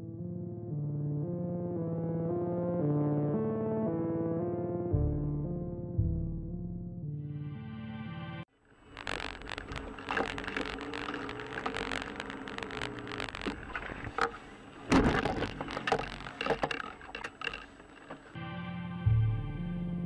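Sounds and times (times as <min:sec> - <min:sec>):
music: 0:00.0 - 0:08.5, 0:18.4 - 0:20.0
clicks and rattles: 0:09.0 - 0:18.3
car road and cabin noise: 0:09.0 - 0:18.4
loud thump: 0:14.9 - 0:15.5.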